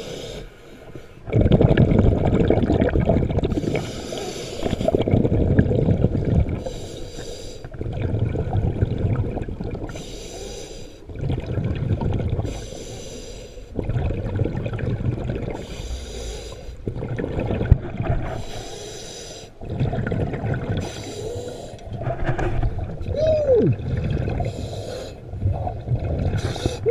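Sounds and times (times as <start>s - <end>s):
regulator hissing inhale: 0.0s - 1.2s, 3.6s - 5.0s, 6.6s - 7.7s, 9.9s - 11.0s, 12.4s - 13.7s, 15.6s - 16.8s, 18.4s - 19.6s, 20.8s - 21.8s, 24.4s - 25.2s
bubbling exhale underwater: 1.2s - 6.8s, 7.6s - 10.0s, 11.0s - 12.8s, 13.7s - 18.7s, 19.5s - 26.9s.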